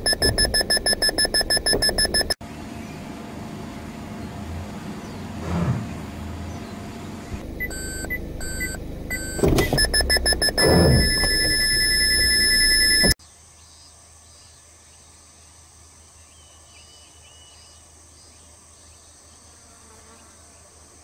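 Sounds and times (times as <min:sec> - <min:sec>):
car warning alarm beeping: 0:00.0 - 0:02.4, 0:07.4 - 0:13.2
slower beeps: 0:00.0 - 0:02.4, 0:07.4 - 0:13.2
low car noise: 0:00.0 - 0:13.2.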